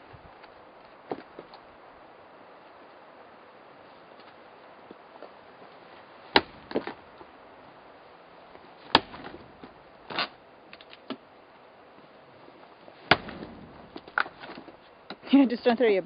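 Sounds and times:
axe chopping firewood: 6.3 - 7.0, 8.8 - 11.2, 13.0 - 14.8.

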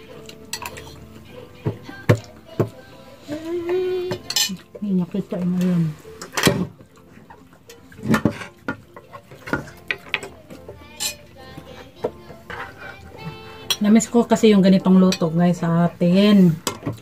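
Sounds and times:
spoons clinking on plates: 0.2 - 2.2, 4.1 - 4.8, 6.2 - 13.0, 13.6 - 14.0, 15.0 - 15.4
ladle scraping frying pan: 5.4 - 13.9.

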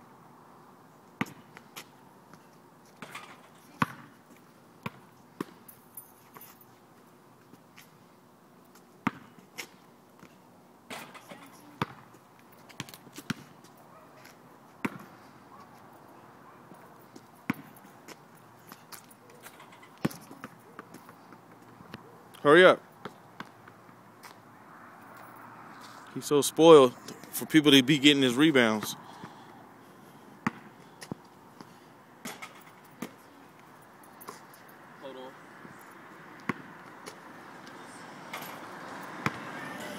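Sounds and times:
basketball bouncing: 1.2 - 1.6, 3.0 - 5.6, 9.0 - 9.8, 10.9 - 12.1, 12.7 - 13.5, 14.8 - 15.2, 17.1 - 17.8, 18.9 - 21.3, 30.4 - 31.3, 36.4 - 37.2, 39.2 - 39.5
basketball bouncing on asphalt: 1.2 - 5.7, 8.7 - 15.9, 16.6 - 22.2, 22.9 - 24.4, 30.3 - 33.3, 35.6 - 37.3, 38.3 - 39.9.

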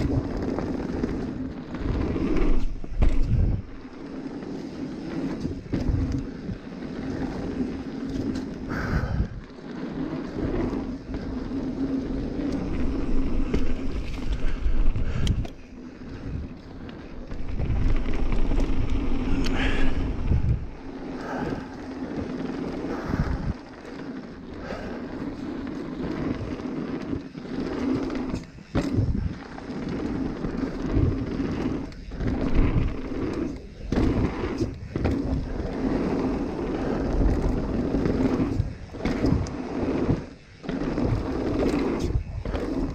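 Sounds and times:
wind buffeting microphone: 0.0 - 3.9, 10.2 - 23.8, 28.1 - 42.9
bike rattling over bumps: 0.0 - 42.9
bike tyres on dirt and leaves: 0.0 - 42.9.

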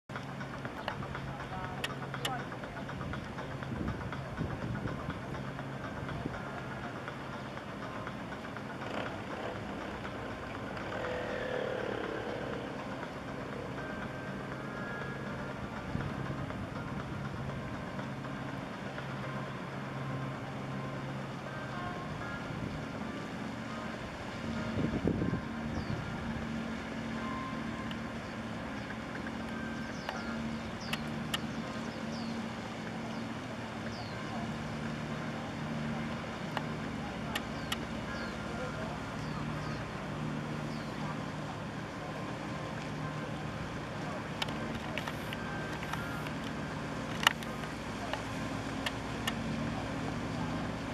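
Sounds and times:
low engine drone: 0.1 - 50.9
traffic noise: 0.1 - 50.9
loud rumble: 2.8 - 21.4.

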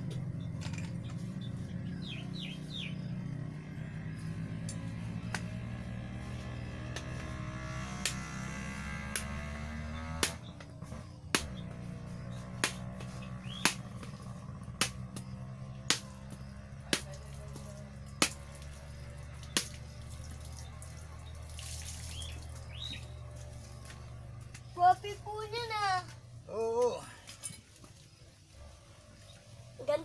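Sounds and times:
steady low hum: 0.0 - 21.6
machete chopping coconut: 8.0 - 8.3, 10.0 - 20.0.

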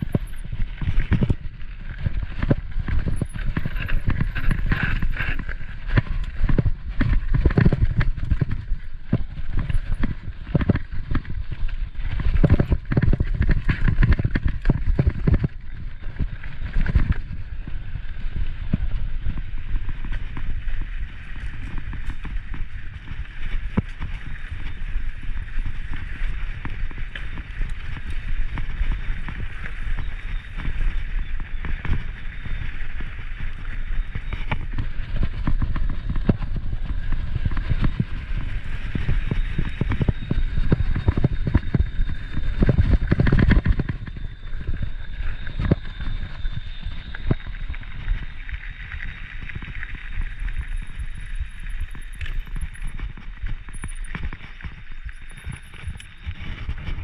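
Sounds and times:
bike rattling and knocking: 0.0 - 44.8
bike tyres on dirt: 0.0 - 57.0
wind rumbling on microphone: 0.0 - 57.0.

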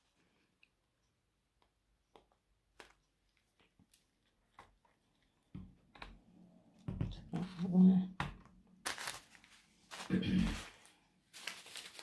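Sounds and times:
soft rustle: 8.9 - 12.0.

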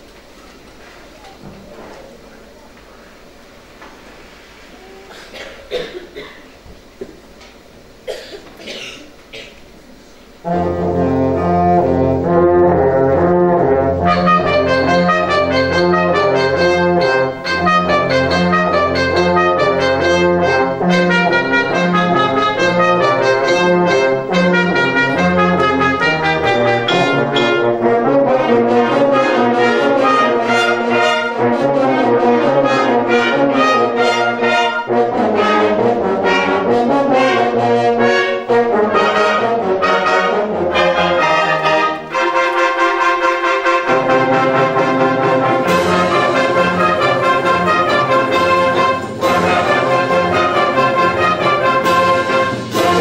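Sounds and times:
wind band playing: 10.3 - 53.0.

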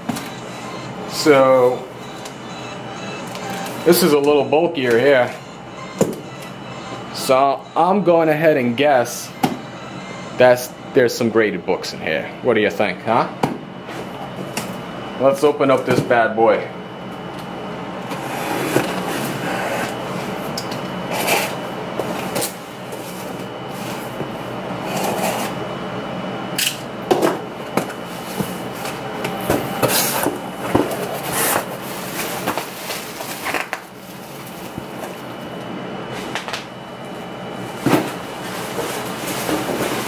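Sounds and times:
packaging rustling and scraping: 18.1 - 20.4, 21.1 - 24.2, 27.8 - 35.5, 37.6 - 40.0.

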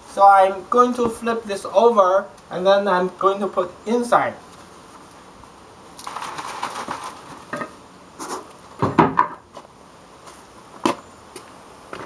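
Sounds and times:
rattling scrape on concrete: 6.0 - 8.5
objects knocking on concrete: 8.8 - 9.4.

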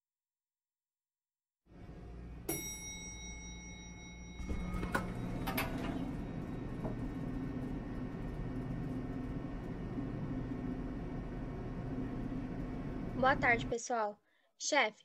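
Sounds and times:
elevator hum: 1.7 - 13.8
elevator chime: 2.4 - 7.5
elevator doors sliding open: 4.4 - 13.5.

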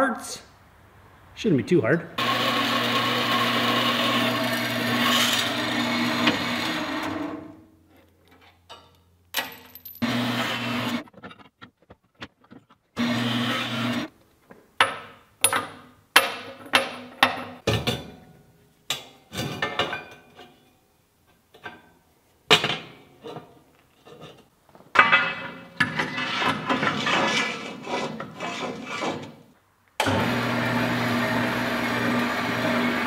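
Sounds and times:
band saw cutting metal: 2.2 - 7.5, 13.0 - 14.1
metal parts clanking on workbench: 8.2 - 10.0, 24.1 - 27.1.

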